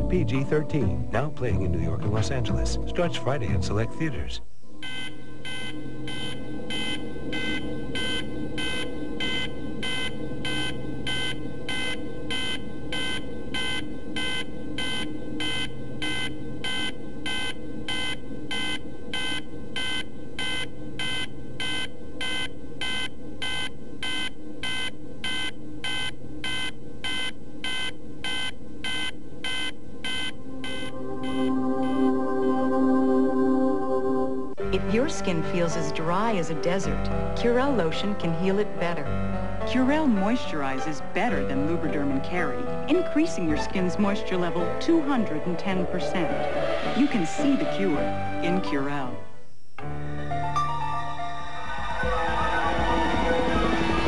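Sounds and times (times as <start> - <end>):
faint hum: 0.0 - 54.0
high electronic beeping: 4.8 - 32.1.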